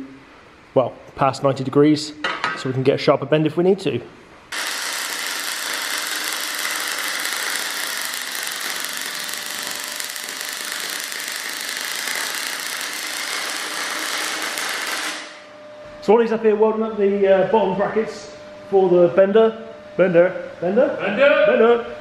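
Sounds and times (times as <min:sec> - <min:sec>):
welder arc crackling: 0:04.5 - 0:15.5.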